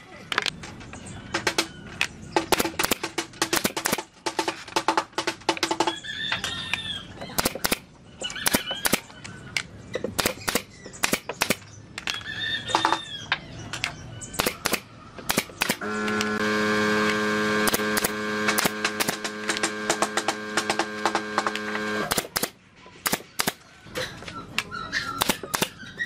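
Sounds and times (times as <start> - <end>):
power tool humming: 15.7 - 22.4.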